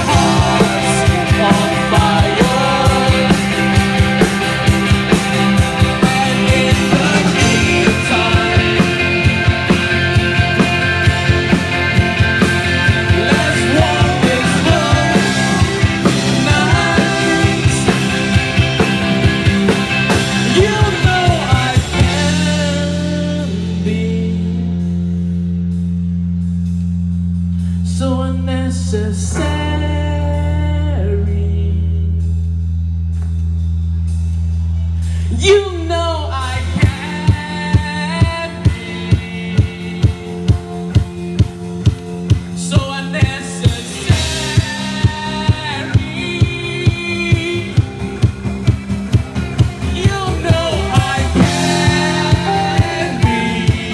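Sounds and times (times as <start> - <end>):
person singing: 0.0 - 3.9, 5.9 - 9.5, 13.0 - 18.5, 20.3 - 24.7, 49.8 - 53.9
drum kit: 0.0 - 28.2, 29.0 - 53.9
electric guitars: 0.0 - 32.1, 34.6 - 53.9
bass guitar: 0.0 - 53.9
keyboard: 0.0 - 53.9.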